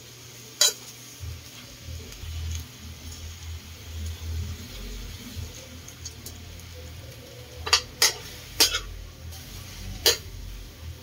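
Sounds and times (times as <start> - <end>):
meat sizzling in a wok: 0.0 - 11.0
metal spoon clanking on pan: 0.6 - 0.9, 7.6 - 8.9, 10.0 - 10.3.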